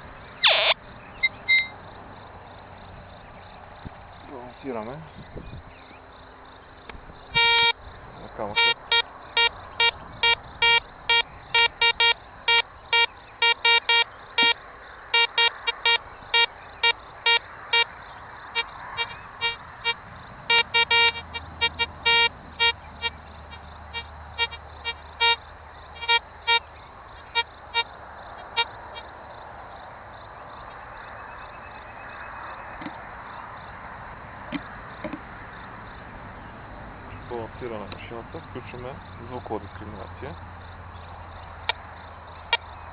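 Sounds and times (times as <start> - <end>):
metal detector beeping: 0.4 - 1.8, 7.3 - 7.8, 8.4 - 17.9, 18.6 - 25.4, 26.0 - 26.7.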